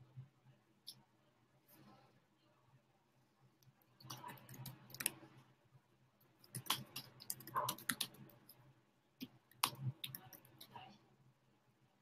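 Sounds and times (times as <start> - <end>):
keyboard and mouse clicks: 4.0 - 5.3, 6.4 - 8.6, 9.2 - 10.8.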